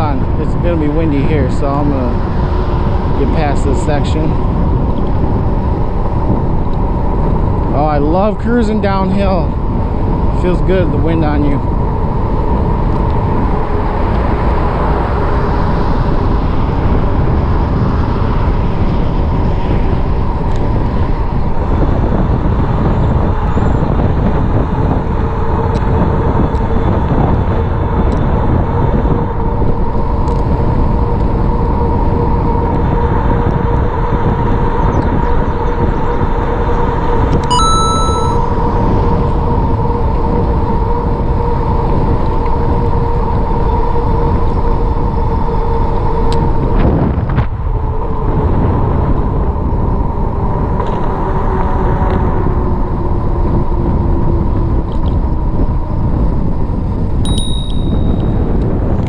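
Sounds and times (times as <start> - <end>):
wind rumbling on microphone: 0.0 - 59.0
brief high ring: 37.4 - 38.6, 57.3 - 58.4.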